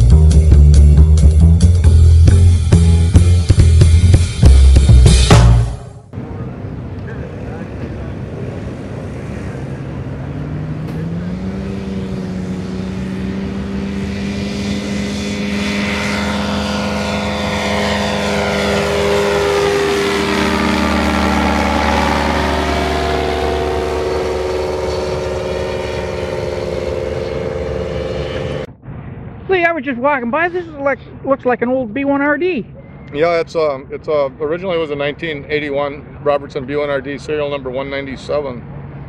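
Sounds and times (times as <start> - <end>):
ultralight plane engine flying past: 6.2 - 29.5.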